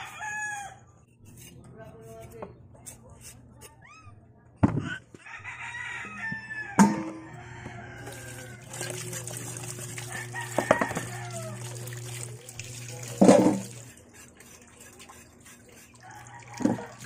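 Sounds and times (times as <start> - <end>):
rooster crowing: 0.0 - 0.9, 5.2 - 8.8, 10.0 - 11.8, 16.0 - 17.0
scraping cassava: 1.1 - 3.8, 13.6 - 16.9
tap water splashing into basin: 8.0 - 13.9.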